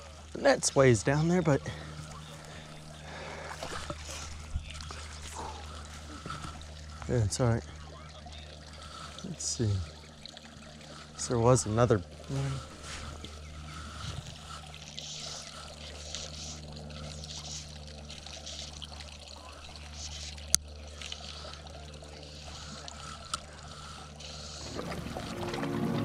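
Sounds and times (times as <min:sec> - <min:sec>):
low hum with faint hiss: 0:00.0 - 0:26.0
music: 0:24.7 - 0:26.0.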